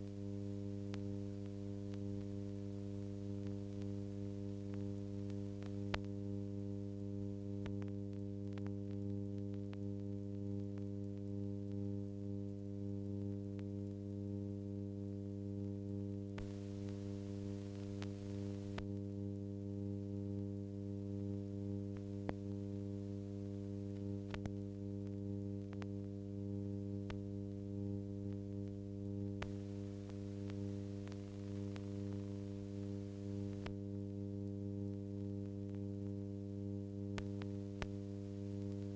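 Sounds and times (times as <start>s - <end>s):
steady electrical hum: 0.0s - 38.9s
faint clicks: 0.9s - 14.2s, 21.3s - 26.2s, 28.3s - 33.8s, 37.1s - 38.9s.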